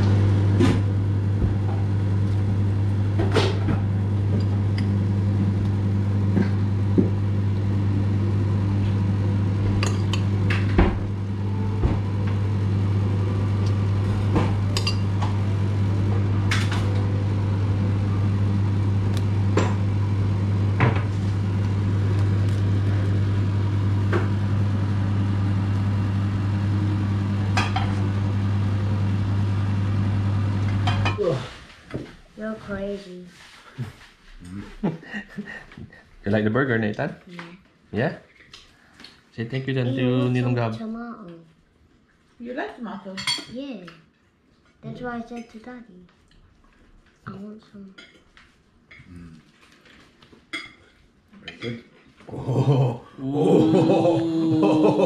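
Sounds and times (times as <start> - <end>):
steady low hum: 0.0 - 37.6.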